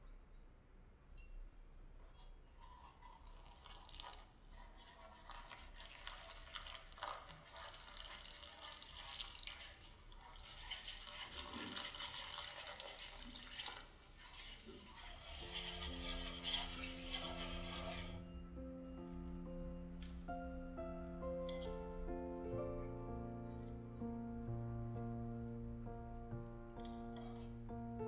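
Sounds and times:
water pouring into metal bowl: 0:02.9 - 0:18.2.

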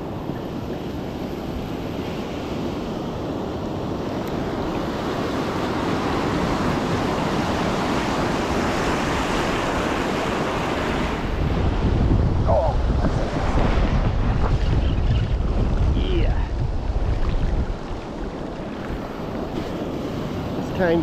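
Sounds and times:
ocean surf on sand beach: 0:00.0 - 0:21.0.

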